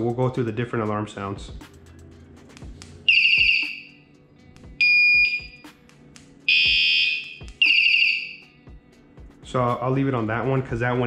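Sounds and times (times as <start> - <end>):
scooter alarm electronic tones: 3.1 - 4.0, 4.8 - 5.7, 6.5 - 8.6.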